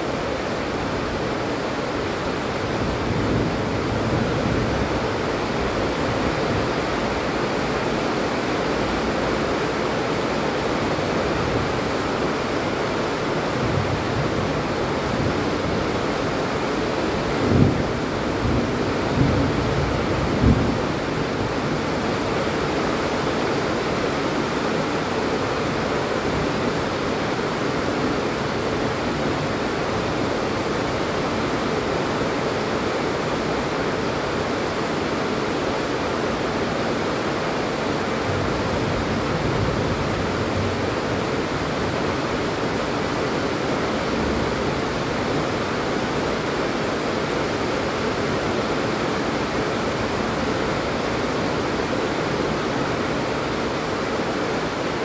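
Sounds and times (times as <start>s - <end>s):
steady rain falling: 0.0s - 55.0s.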